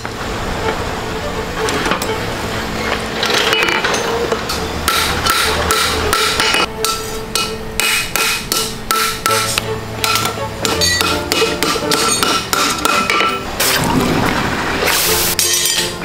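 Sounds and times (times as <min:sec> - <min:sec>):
hammer striking metal on anvil: 0:04.5 - 0:13.8, 0:15.3 - 0:16.0.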